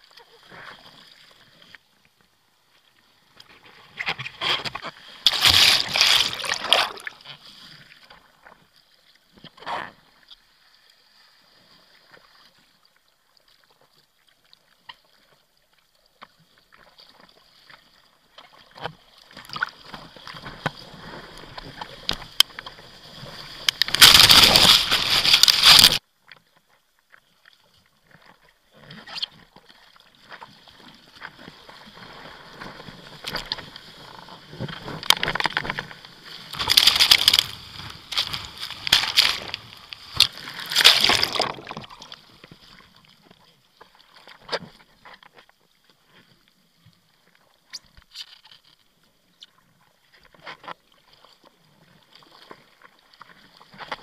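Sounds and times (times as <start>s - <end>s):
seawater splashing and rushing: 4.6s - 7.4s, 19.6s - 26.0s, 30.9s - 42.7s.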